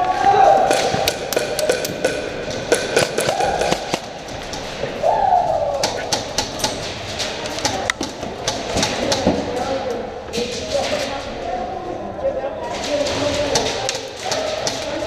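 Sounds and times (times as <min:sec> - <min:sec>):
pellets striking walls: 0:00.3 - 0:05.1, 0:05.8 - 0:09.8, 0:12.8 - 0:15.0
airsoft guns firing: 0:00.6 - 0:04.8.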